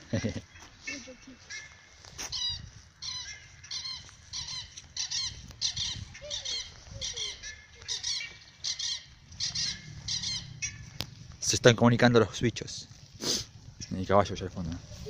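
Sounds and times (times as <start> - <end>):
birds chirping: 0.0 - 15.0
lower falling bird notes: 6.6 - 11.4.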